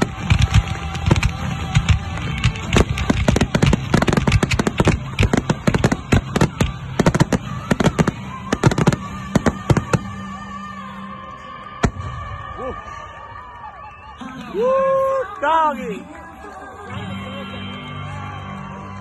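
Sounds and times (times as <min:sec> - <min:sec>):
fireworks bursting: 0:00.0 - 0:10.6.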